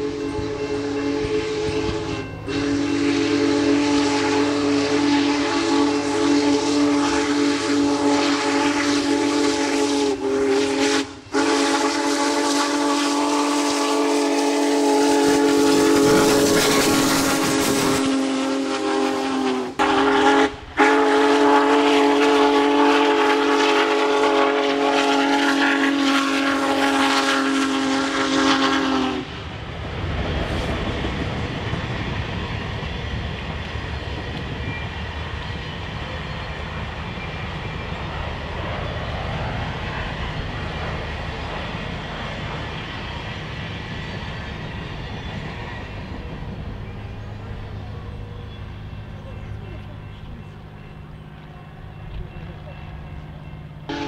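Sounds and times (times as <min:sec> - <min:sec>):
steam chime whistle blasts: 0:00.0 - 0:29.4, 0:53.4 - 0:54.0.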